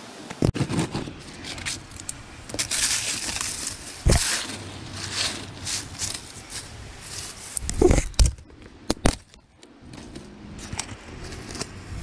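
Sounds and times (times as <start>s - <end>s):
footsteps on leafy dirt trail: 0.6s - 8.5s
dry leaves and twigs rustling: 0.6s - 12.0s.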